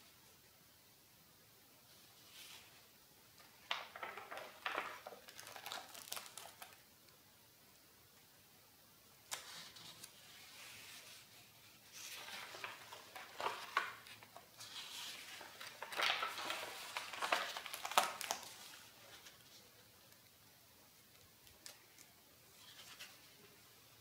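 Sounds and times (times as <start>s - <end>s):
paper pages turning: 3.6s - 6.8s, 9.3s - 20.3s, 21.0s - 23.6s.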